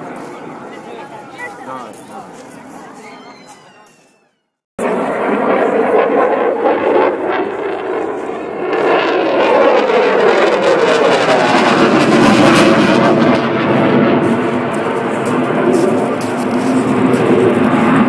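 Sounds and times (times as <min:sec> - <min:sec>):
jet engines flying past: 0:00.0 - 0:03.0, 0:04.8 - 0:18.0.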